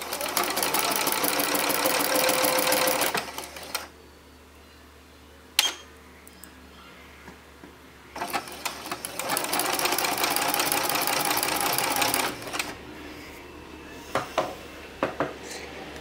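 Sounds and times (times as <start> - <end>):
sewing machine stitching: 0.0 - 3.9, 8.2 - 12.8.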